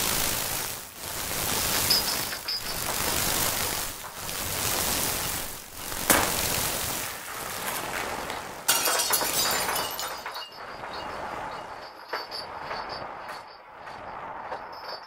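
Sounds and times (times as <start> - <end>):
dense rushing noise: 0.0 - 11.9
crackling glassy texture: 0.0 - 15.0.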